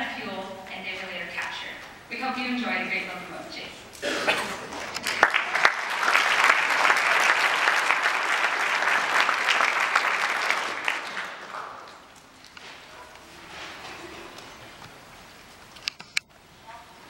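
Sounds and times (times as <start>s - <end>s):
audience applauding: 4.5s - 12.5s.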